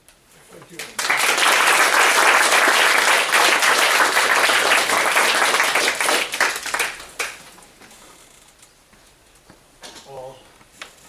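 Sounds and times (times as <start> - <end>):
audience applauding: 0.7 - 7.4.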